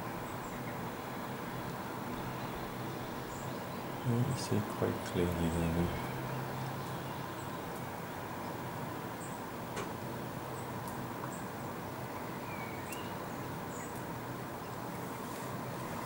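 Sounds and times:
steady outdoor hiss: 0.0s - 16.0s
faint high bird chirps: 12.1s - 14.0s.

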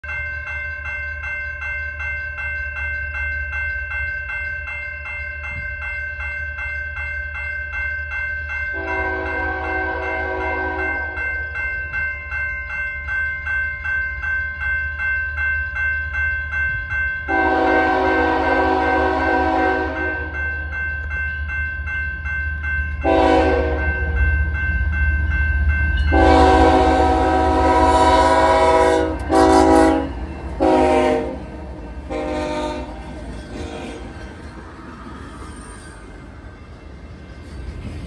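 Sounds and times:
crossing warning bell ringing: 0.0s - 38.0s
locomotive horn blasts: 8.8s - 11.2s, 17.3s - 20.4s, 23.0s - 24.1s, 26.1s - 31.4s, 32.1s - 33.0s.

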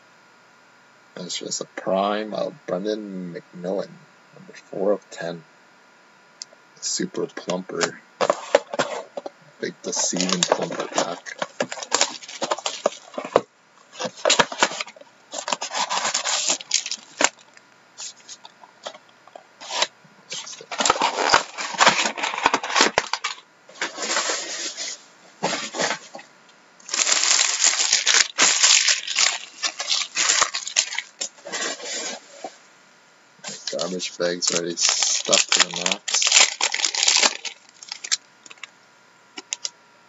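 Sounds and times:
card packs crinkling and rustling: 7.0s - 32.6s, 33.4s - 38.7s.

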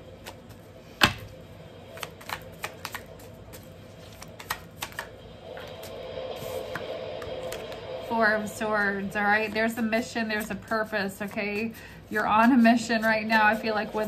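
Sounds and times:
cards being shuffled: 0.1s - 5.2s.

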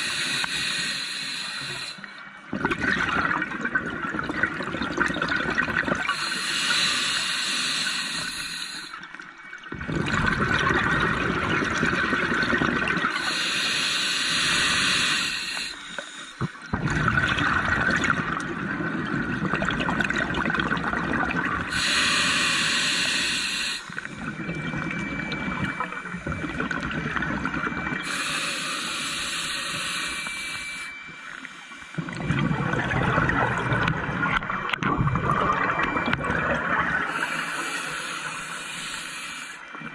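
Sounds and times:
regulator inhalation hiss: 0.0s - 2.1s, 6.1s - 9.0s, 13.2s - 16.6s, 21.7s - 24.3s, 28.0s - 32.0s, 37.1s - 39.7s
exhaled bubbles rushing: 2.5s - 6.2s, 9.7s - 13.2s, 16.4s - 21.7s, 32.0s - 37.2s.

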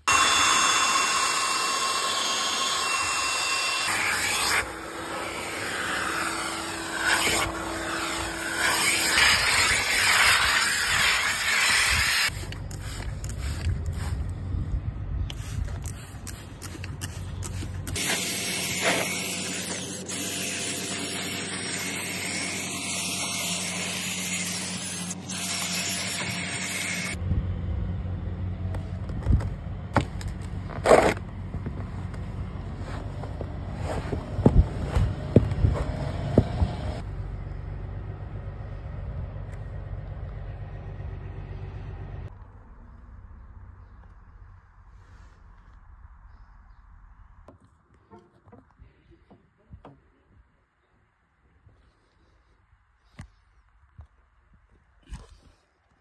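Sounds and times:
steady machine noise: 0.0s - 10.2s
cordless drill spinning brush: 0.0s - 14.3s, 15.3s - 27.2s
rubbing on rubber mat: 32.8s - 36.0s.

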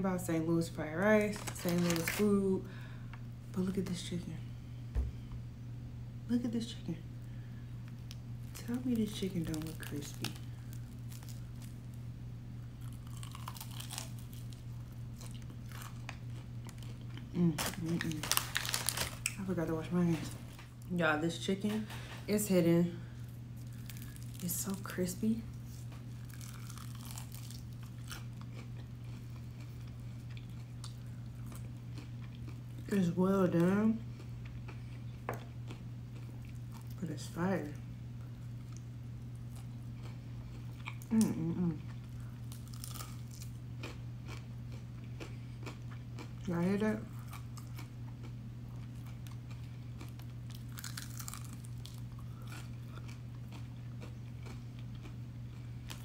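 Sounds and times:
low hum: 0.0s - 56.0s
chewing crispy fried chicken: 7.9s - 12.0s, 12.8s - 19.4s, 23.1s - 37.0s, 37.7s - 56.0s.

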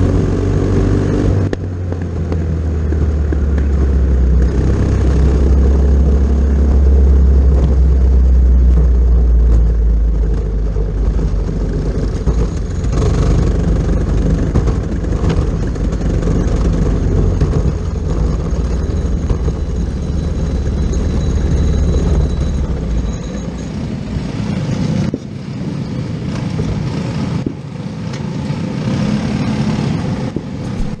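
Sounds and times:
kart engine running: 0.0s - 25.2s, 25.9s - 31.0s.

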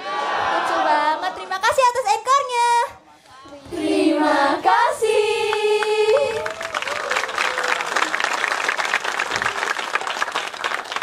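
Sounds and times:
women singing together: 0.0s - 1.7s, 3.4s - 6.5s
audience applause: 6.1s - 11.0s.

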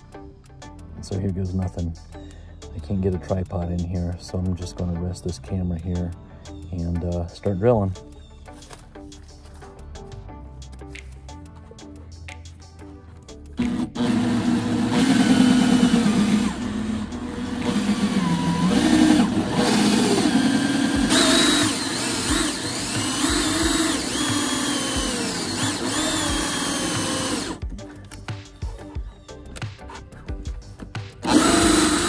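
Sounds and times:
cordless drill cutting plastic: 13.6s - 27.7s, 31.2s - 32.0s.

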